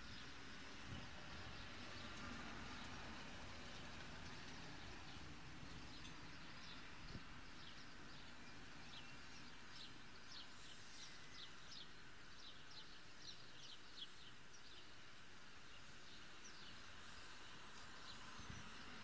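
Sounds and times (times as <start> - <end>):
faint steady hiss: 0.0 - 19.0
small birds chirping: 4.2 - 19.0.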